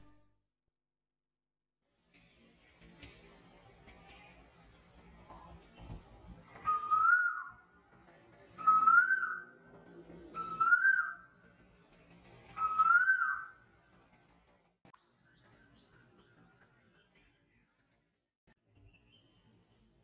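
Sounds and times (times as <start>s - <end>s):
whistle-like sliding tone: 6.6s - 7.6s.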